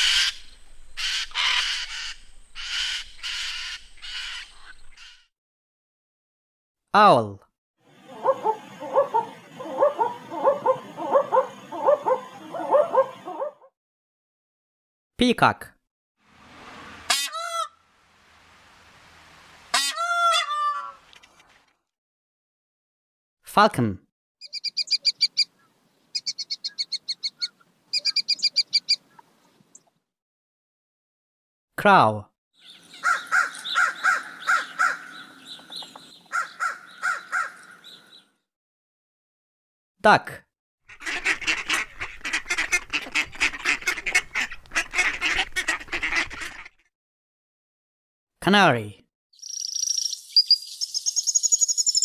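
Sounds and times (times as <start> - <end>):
falcon calling: 0.0 - 5.2, 24.4 - 29.2
ducks quacking: 1.0 - 5.2, 40.9 - 46.8.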